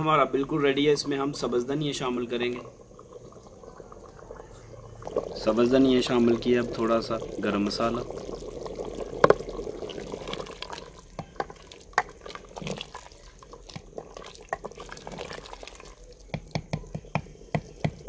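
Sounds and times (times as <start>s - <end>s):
gravy sloshing: 0.0s - 18.0s
spoon knocking and scraping pot: 11.1s - 12.8s, 16.3s - 18.0s.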